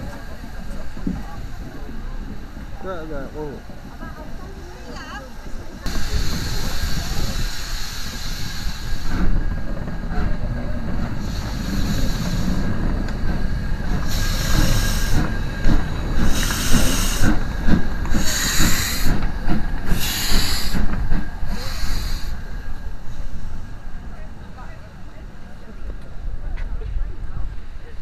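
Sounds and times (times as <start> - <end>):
steam locomotive hissing steam: 0.0 - 26.4
loud bursts of steam hiss: 5.8 - 10.2, 10.8 - 23.9.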